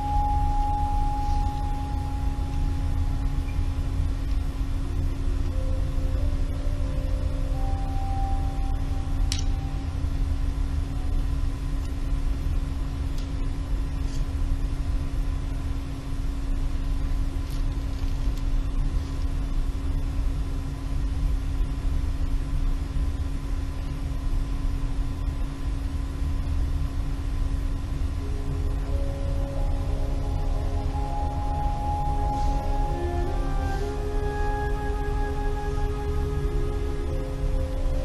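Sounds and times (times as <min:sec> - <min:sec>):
low drone tone: 0:00.0 - 0:14.0, 0:27.6 - 0:38.0.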